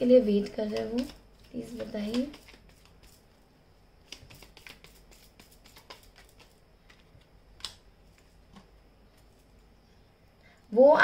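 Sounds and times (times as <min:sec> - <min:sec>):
cards clicking and rustling: 0:00.4 - 0:03.2, 0:04.0 - 0:08.7.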